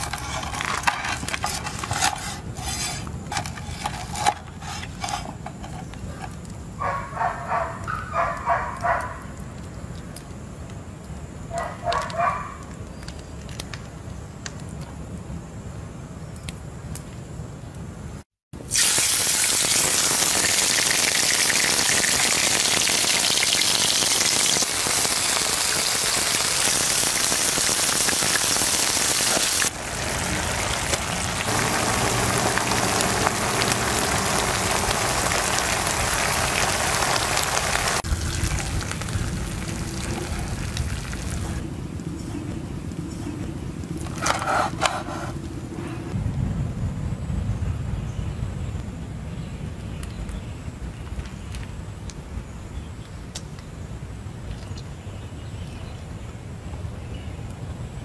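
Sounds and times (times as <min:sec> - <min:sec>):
steak sizzling in a pan: 0:18.7 - 0:41.6.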